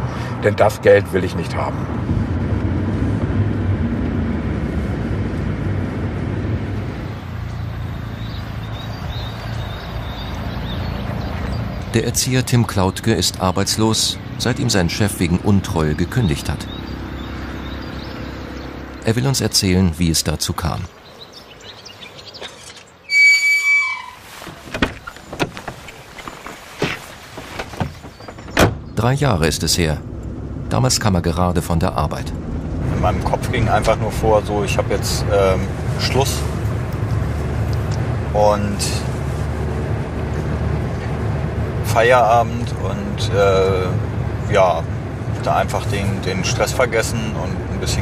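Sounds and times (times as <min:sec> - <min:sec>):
car road and engine noise: 0:00.0 - 0:48.0
car door shutting: 0:24.3 - 0:29.0
clicks and knocks of car door: 0:24.5 - 0:28.9.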